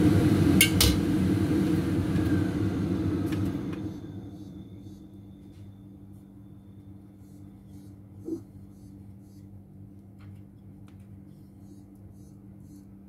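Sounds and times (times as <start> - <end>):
low mechanical hum: 0.0 - 13.0.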